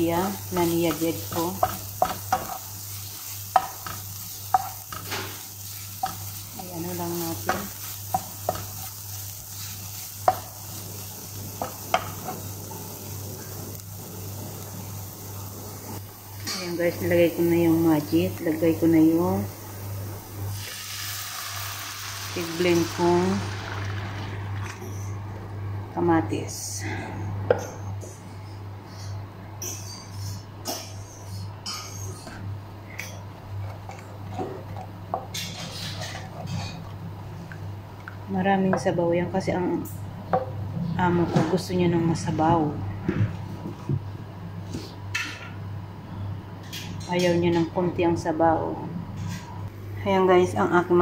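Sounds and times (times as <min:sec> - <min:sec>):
food sizzling in a pan: 0:00.0 - 0:25.2.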